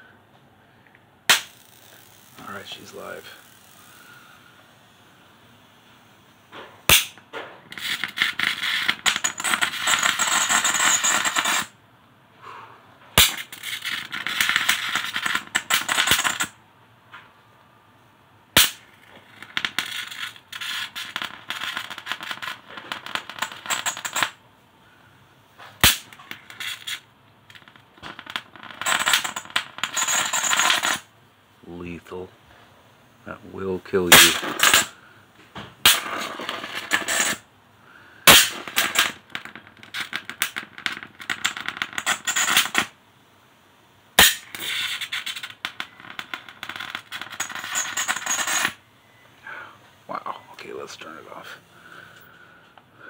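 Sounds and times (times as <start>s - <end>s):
electric arc snapping: 1.3s - 4.2s
electric arc crackling: 1.3s - 4.4s, 18.6s - 24.4s, 38.3s - 43.0s.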